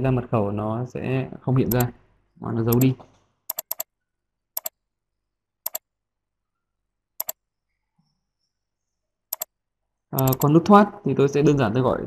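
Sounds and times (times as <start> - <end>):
mouse button clicks: 10.2 - 10.6.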